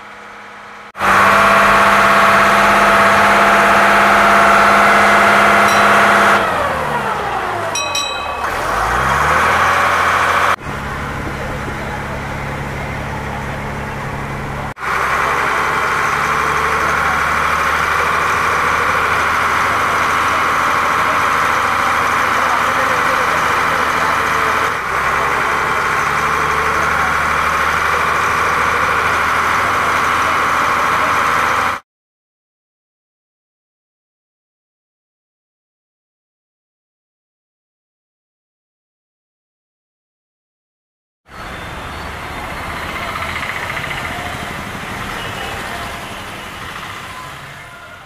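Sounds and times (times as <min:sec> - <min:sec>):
boat diesel engine idling: 0:00.0 - 0:31.8, 0:41.4 - 0:48.0.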